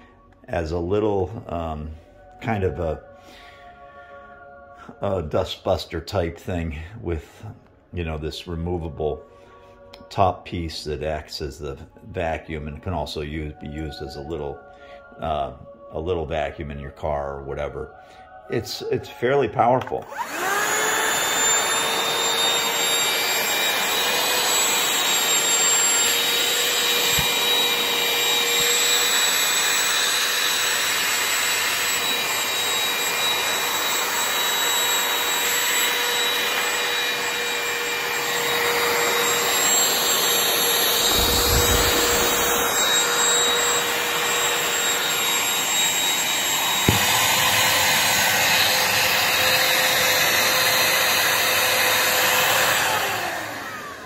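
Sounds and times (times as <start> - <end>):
handheld vacuum whine: 19.8 - 54.0
low rumble: 41.0 - 43.0.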